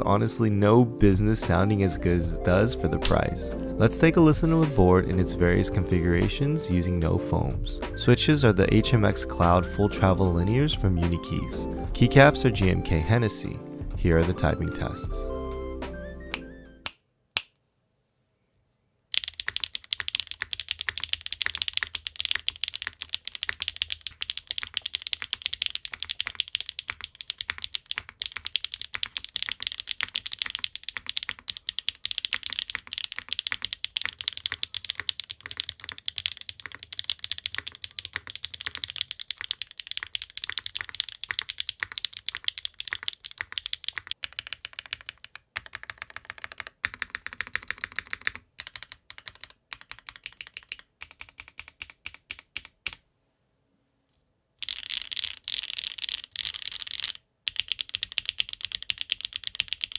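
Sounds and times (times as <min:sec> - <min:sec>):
mechanical keyboard typing: 0:19.1 - 0:53.0, 0:54.6 - 0:59.9.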